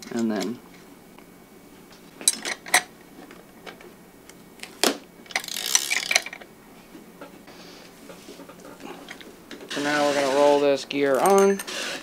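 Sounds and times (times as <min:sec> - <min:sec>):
wrench metal clink: 0:11.2 - 0:11.7.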